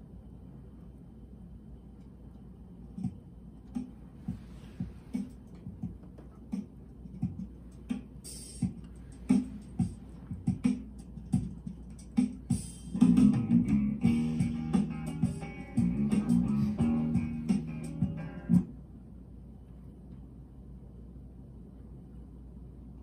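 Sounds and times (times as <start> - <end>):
steady drum beat: 3.0 - 18.7
band music: 12.9 - 18.6.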